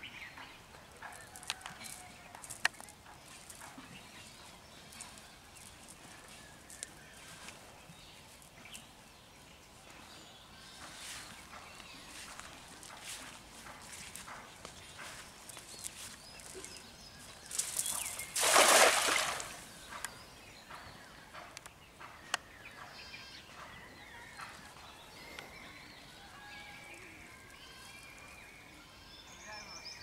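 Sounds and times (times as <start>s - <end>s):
birds chirping: 0.0s - 30.0s
net splashing on pond: 17.6s - 19.7s.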